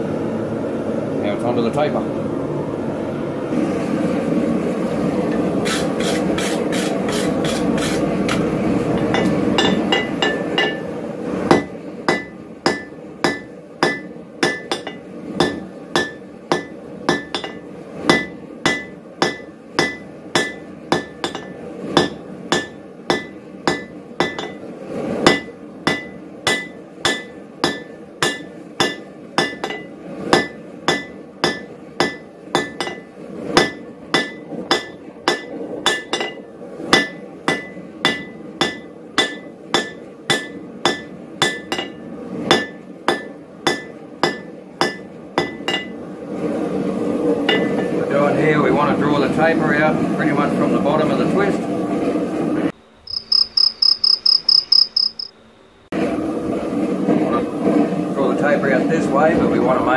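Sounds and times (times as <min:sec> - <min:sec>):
hammer striking steel on anvil: 0:09.0 - 0:10.9, 0:11.5 - 0:24.6, 0:25.3 - 0:46.0, 0:47.5 - 0:48.0.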